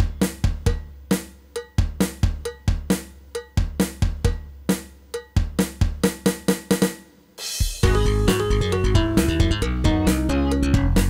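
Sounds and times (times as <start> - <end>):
punchy drum hits: 7.6 - 10.2
steady low bass line: 7.8 - 11.0.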